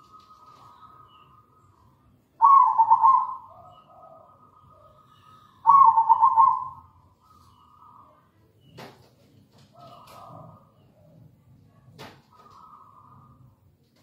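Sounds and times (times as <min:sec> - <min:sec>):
dove cooing: 0:02.4 - 0:07.4, 0:09.7 - 0:11.2, 0:12.3 - 0:13.5.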